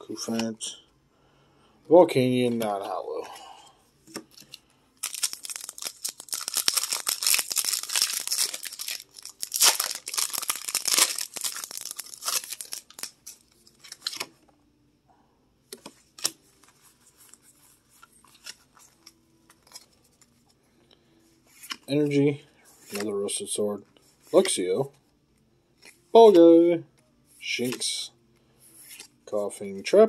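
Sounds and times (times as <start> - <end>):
cards tapping and rustling: 4.1 - 14.3, 27.6 - 28.0
foil wrapper tearing and crinkling: 5.0 - 14.2.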